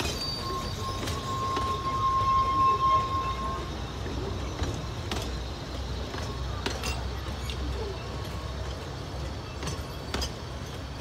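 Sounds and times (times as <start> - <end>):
train coaches rumbling past: 0.0 - 11.0
wheels clicking over rail joints: 0.0 - 11.0.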